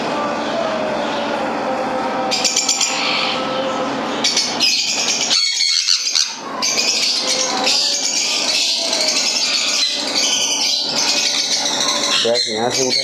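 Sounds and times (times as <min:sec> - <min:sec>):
parrot chick squawking: 0:02.3 - 0:03.5, 0:04.2 - 0:13.0.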